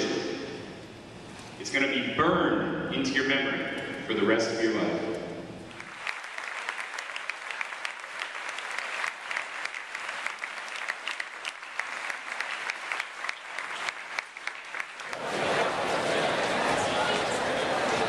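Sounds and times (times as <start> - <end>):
audience applauding: 5.7 - 18.0.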